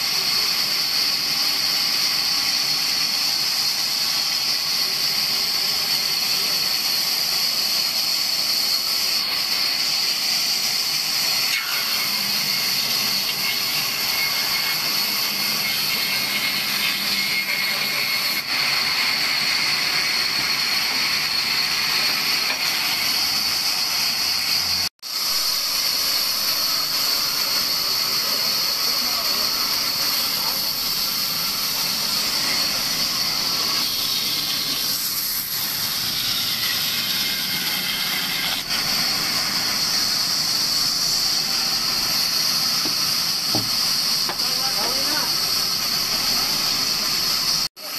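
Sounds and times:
band saw cutting logs: 0.0s - 47.9s.

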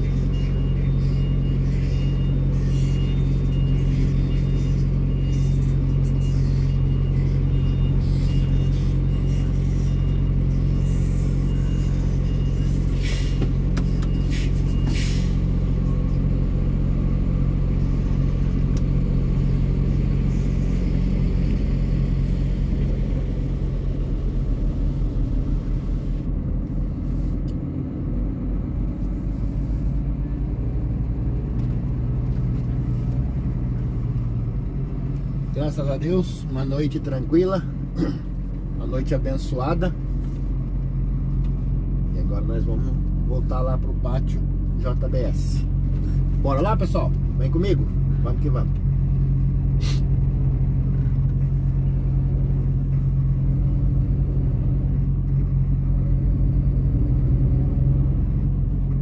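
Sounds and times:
diesel truck engine running: 0.0s - 59.0s
short air hisses: 13.0s - 13.4s, 14.3s - 15.4s, 49.8s - 50.1s.

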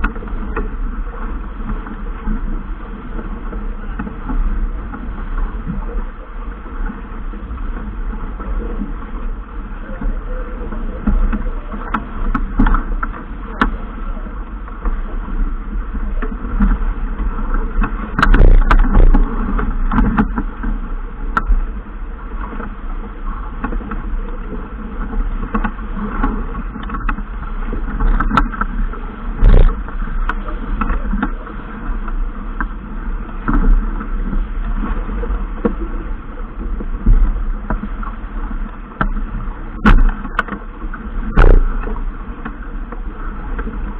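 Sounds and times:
low rumble of wind: 0.0s - 43.9s
water noise: 0.0s - 43.9s.

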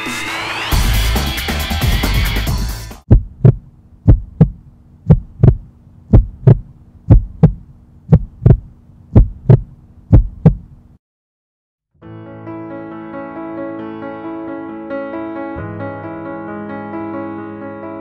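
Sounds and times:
heartbeat thumps: 3.1s - 10.8s
steady low hum: 3.1s - 11.0s.

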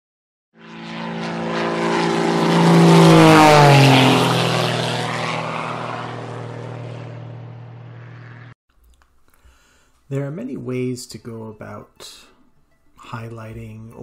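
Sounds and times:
propeller airplane engine drone: 0.6s - 8.6s.

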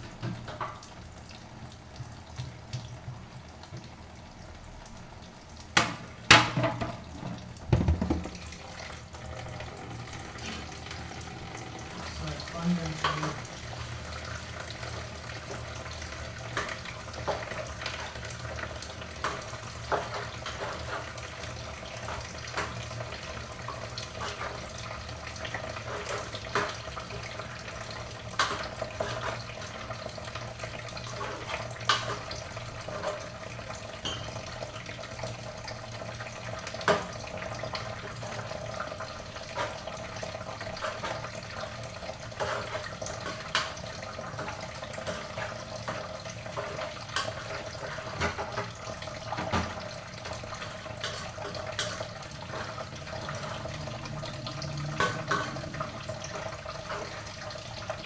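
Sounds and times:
tap running into a sink: 5.7s - 9.0s, 46.6s - 50.4s.

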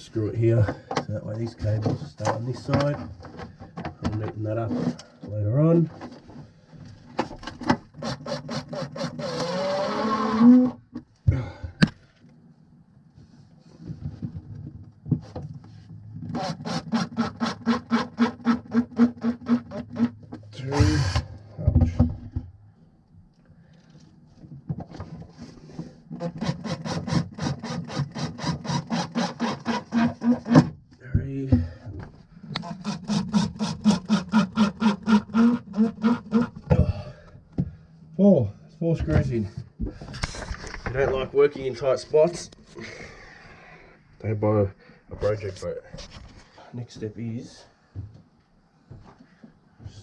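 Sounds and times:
cordless driver whirring: 8.0s - 10.5s
cordless drill driving a screw: 8.0s - 10.6s, 16.3s - 20.1s, 20.7s - 21.3s, 26.2s - 30.4s.

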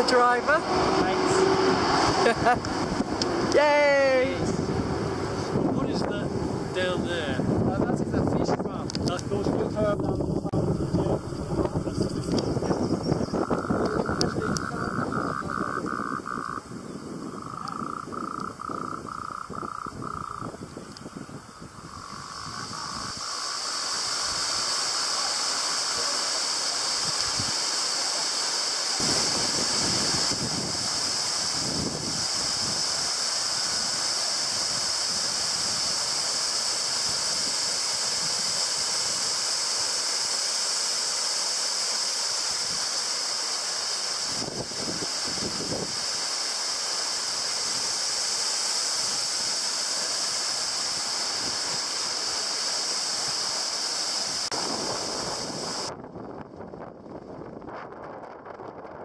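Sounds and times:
low rumbles: 9.2s - 16.7s
waterfall rushing over rock: 22.6s - 55.9s.

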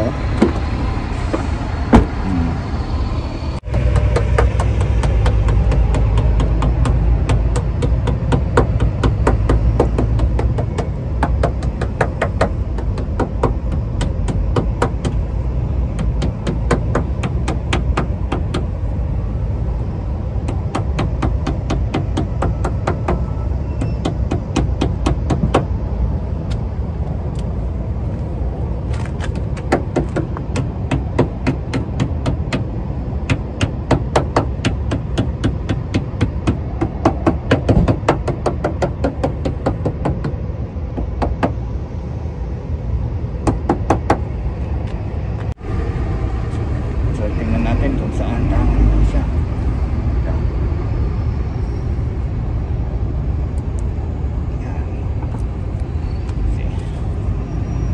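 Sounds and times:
steady low rumble: 0.0s - 57.9s
hand tool tapping rubber trim: 3.8s - 15.2s, 15.9s - 18.7s, 20.4s - 23.2s, 29.2s - 40.4s.

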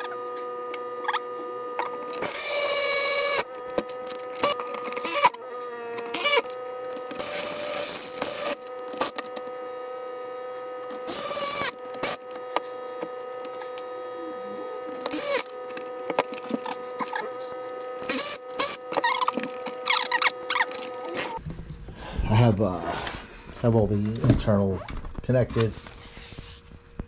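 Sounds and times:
cordless power driver whirring: 0.0s - 21.4s
steady hum: 0.0s - 27.0s.

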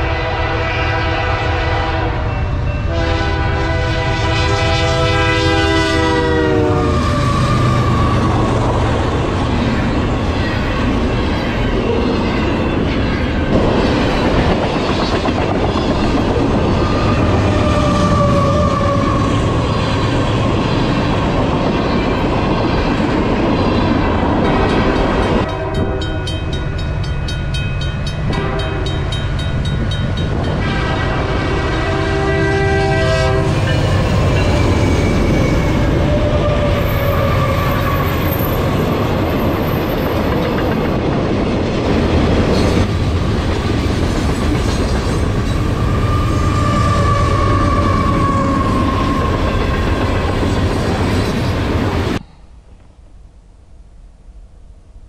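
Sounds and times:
locomotive horn: 0.0s - 9.2s, 16.6s - 20.3s, 24.4s - 26.6s, 28.2s - 29.4s, 30.4s - 39.2s, 45.8s - 50.1s
crossing bell ringing: 2.1s - 3.2s, 23.9s - 31.2s, 33.4s - 36.1s
train wheels rumbling on rails: 2.1s - 52.3s.

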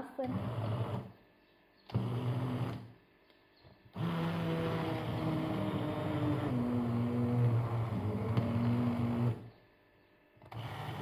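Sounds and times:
immersion blender motor: 0.2s - 1.2s, 1.9s - 2.9s, 3.9s - 9.5s, 10.4s - 11.0s.

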